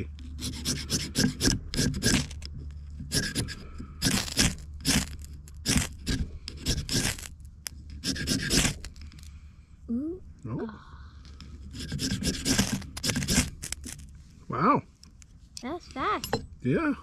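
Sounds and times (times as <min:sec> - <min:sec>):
flint rod rasping: 0:00.0 - 0:09.5, 0:11.3 - 0:14.2.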